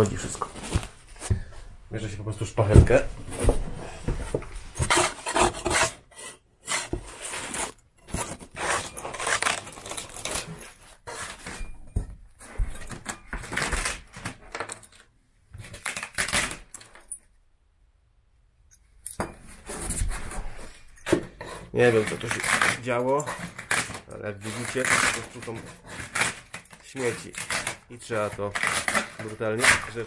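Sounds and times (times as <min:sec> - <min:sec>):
putty knife scraping plywood: 0:03.4 - 0:11.7, 0:19.6 - 0:30.0.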